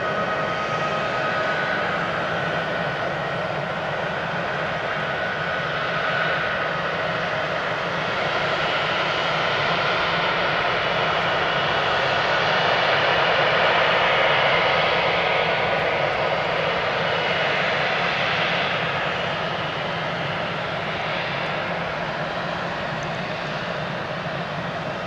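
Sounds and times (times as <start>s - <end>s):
jet engine rush with whine: 0.0s - 25.0s.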